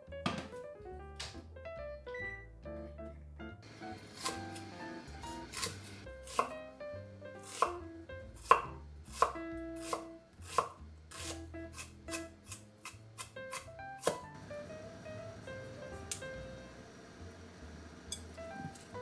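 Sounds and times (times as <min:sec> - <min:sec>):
knife chopping onion on board: 0:04.0 - 0:06.7, 0:07.4 - 0:14.4.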